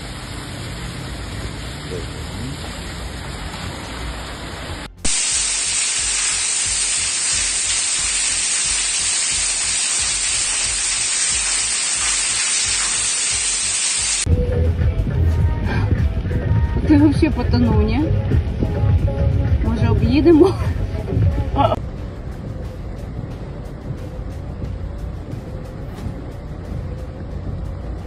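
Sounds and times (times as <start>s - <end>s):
rain and floodwater on street: 0.0s - 14.3s
water rushing in stairwell: 0.0s - 14.3s.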